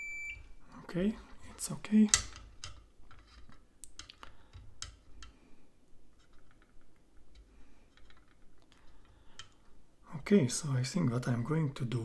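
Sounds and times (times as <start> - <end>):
small tools clicking and tapping: 2.1 - 5.4, 6.2 - 9.6.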